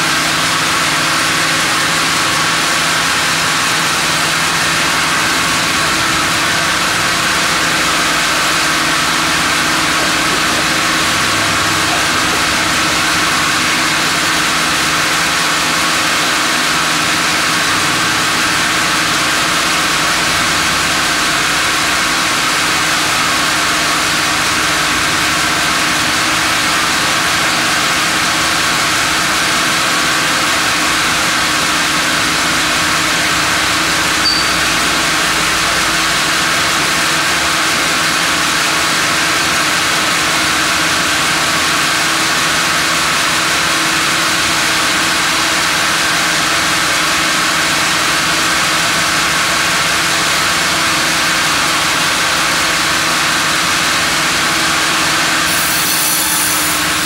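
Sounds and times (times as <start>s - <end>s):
sawmill machinery humming: 0.0s - 57.0s.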